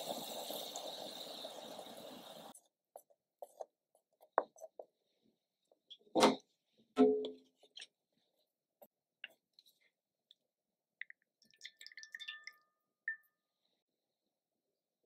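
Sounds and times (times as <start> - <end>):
water boiling in a pot: 0.0 - 3.1, 11.1 - 13.2.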